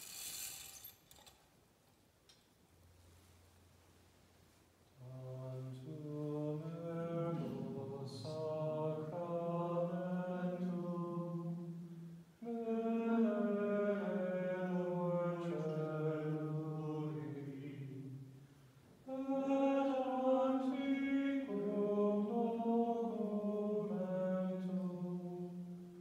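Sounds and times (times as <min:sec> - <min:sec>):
man chanting a hymn: 0:05.0 - 0:18.2, 0:19.0 - 0:26.0.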